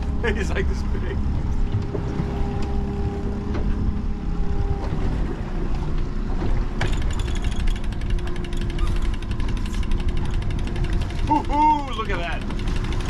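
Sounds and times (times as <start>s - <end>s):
boat engine rumble: 0.0s - 13.0s
fishing reel ratchet clicking: 7.0s - 11.2s.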